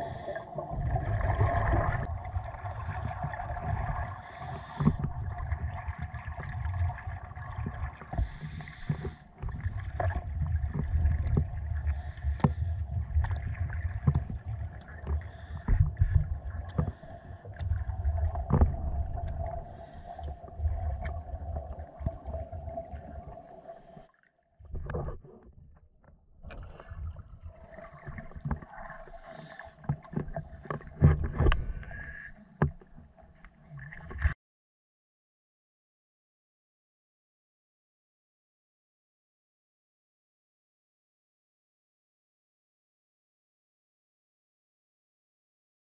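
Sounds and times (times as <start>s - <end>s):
underwater regulator bubbles: 0.0s - 24.0s.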